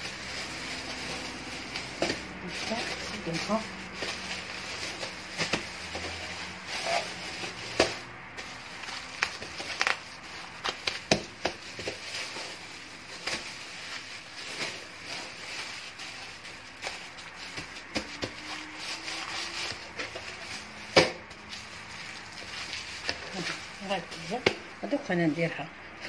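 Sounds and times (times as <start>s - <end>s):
hands patting dough: 0.0s - 15.9s, 16.6s - 25.1s
plastic bag crinkling: 0.0s - 26.0s.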